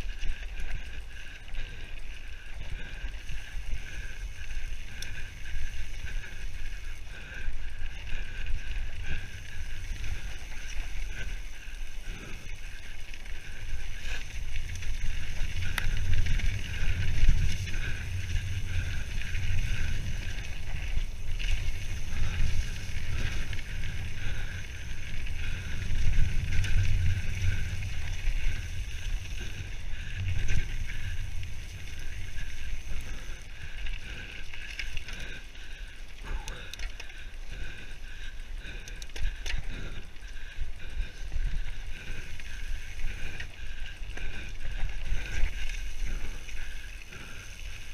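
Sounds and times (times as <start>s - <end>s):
bike tyres rolling on gravel: 0.0s - 47.9s
wind rumble on microphone: 2.5s - 35.4s
bike knocking and rattling: 2.8s - 37.3s.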